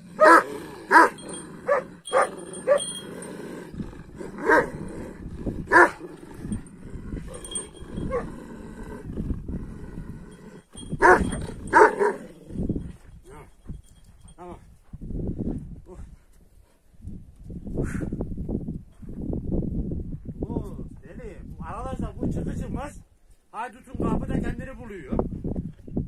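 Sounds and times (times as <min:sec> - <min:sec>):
dogs barking deeply: 0:00.0 - 0:09.9, 0:11.0 - 0:12.4.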